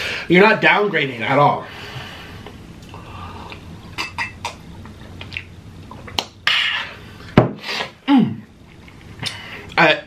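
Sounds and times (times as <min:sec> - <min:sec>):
breathy exhale: 0:01.7 - 0:03.6.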